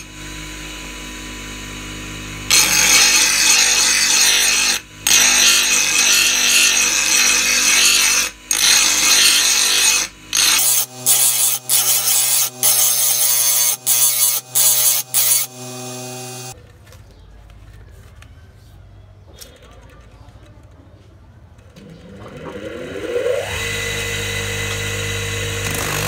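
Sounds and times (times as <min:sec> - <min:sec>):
grinder motor humming: 0:00.0 - 0:16.6, 0:21.8 - 0:26.0
grinder wheel grinding steel blade: 0:00.0 - 0:16.6, 0:21.6 - 0:26.0.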